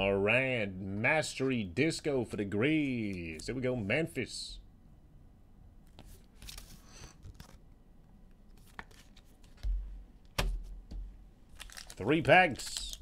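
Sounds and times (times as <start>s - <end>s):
cards and wrappers rustling: 8.5s - 9.8s, 11.5s - 13.0s.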